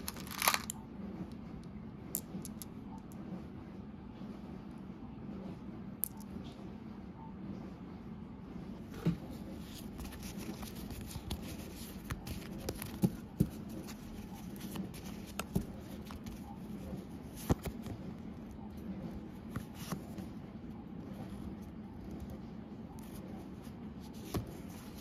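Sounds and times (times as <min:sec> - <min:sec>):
paper rustling: 0:00.0 - 0:00.7, 0:09.6 - 0:17.9, 0:24.0 - 0:25.0.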